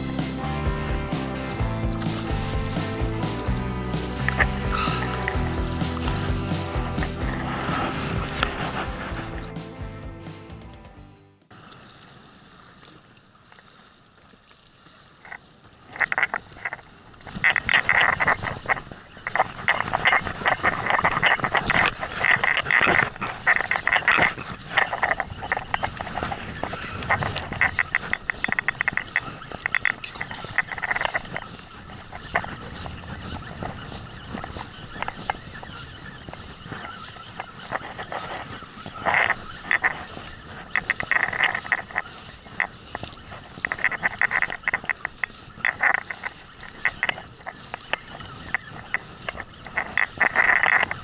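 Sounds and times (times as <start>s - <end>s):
wind and water hiss: 0.0s - 9.9s, 11.5s - 51.0s
fishing reel squeaking clicks: 16.0s - 51.0s.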